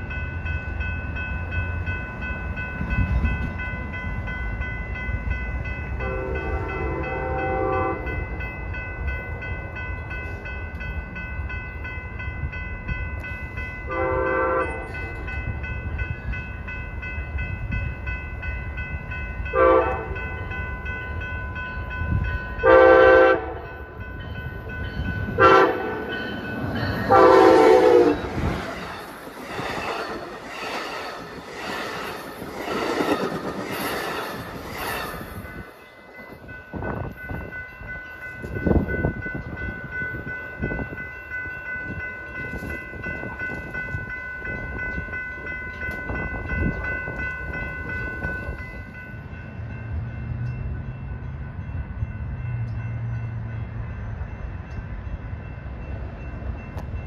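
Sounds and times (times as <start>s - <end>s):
train wheels rumbling and clattering: 0.0s - 57.0s
train air horn blasts: 6.0s - 8.1s, 13.9s - 15.0s, 19.5s - 20.2s, 22.6s - 23.7s, 25.4s - 26.2s, 27.1s - 28.3s.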